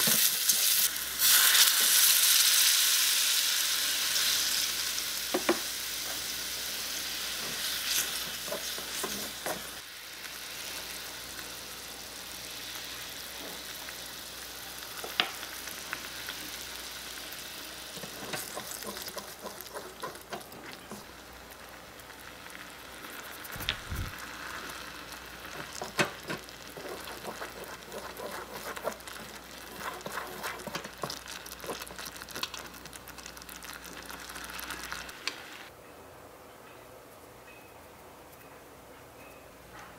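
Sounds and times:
mushrooms sizzling in a wok: 0.0 - 35.7
wooden spatula scraping a pan: 7.4 - 9.8, 18.0 - 21.0, 25.6 - 31.8.

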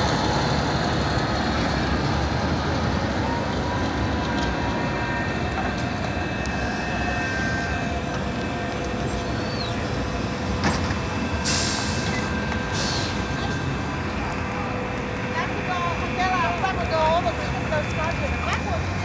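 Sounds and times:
city traffic rumble: 0.0 - 19.0
compressed air hisses: 11.4 - 13.2.

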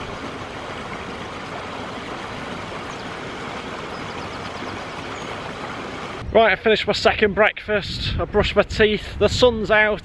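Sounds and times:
stream rushing over stones: 0.0 - 6.3.

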